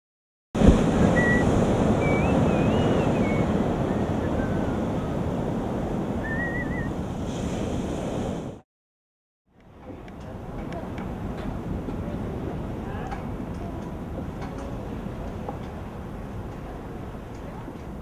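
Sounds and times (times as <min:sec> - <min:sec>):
surf washing up a beach: 0:00.6 - 0:08.6, 0:09.6 - 0:18.0
wind buffeting microphone: 0:00.6 - 0:08.6
faint high whistles: 0:01.0 - 0:04.8, 0:06.2 - 0:07.0.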